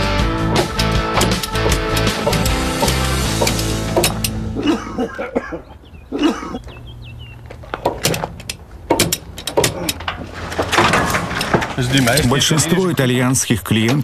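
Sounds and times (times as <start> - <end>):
metal strap buckles clicking: 7.7 - 10.2.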